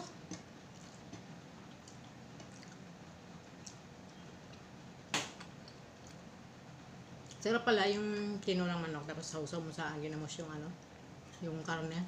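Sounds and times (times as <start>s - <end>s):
soft chewing: 0.2s - 4.8s, 5.6s - 6.4s, 7.1s - 7.4s.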